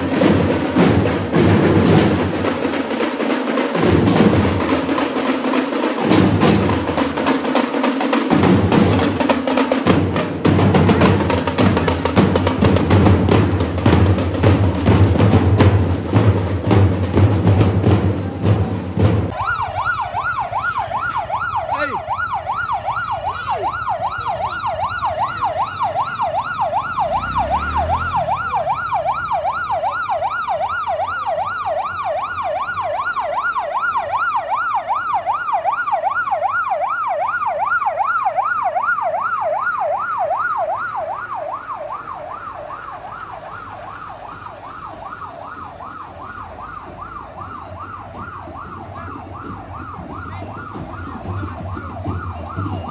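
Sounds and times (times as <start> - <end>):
fire truck siren yelping: 19.0 - 52.9.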